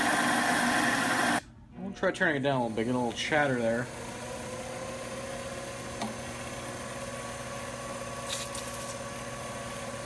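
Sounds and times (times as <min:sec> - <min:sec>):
aerosol spray can hissing: 0:08.2 - 0:09.0.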